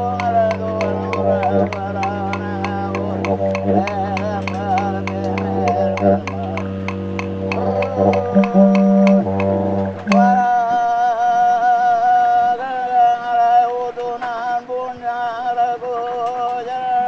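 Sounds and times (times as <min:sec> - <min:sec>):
didgeridoo drone with taps: 0:00.0 - 0:10.8
person singing long notes: 0:00.0 - 0:17.0.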